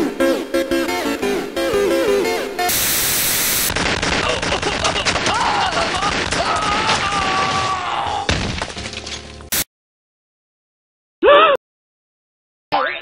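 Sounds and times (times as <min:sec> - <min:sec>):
hiss of noise: 0:02.7 - 0:03.7
rapid automatic gunfire: 0:03.7 - 0:06.8.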